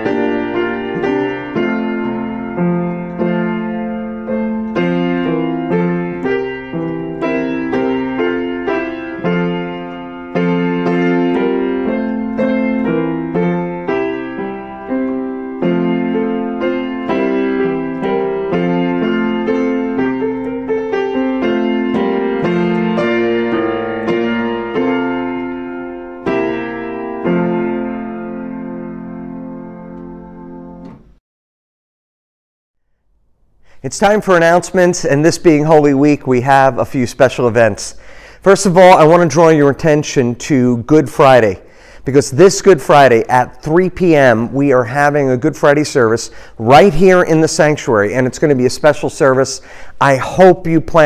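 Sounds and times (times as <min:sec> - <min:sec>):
gentle piano melody: 0:00.0 - 0:31.2.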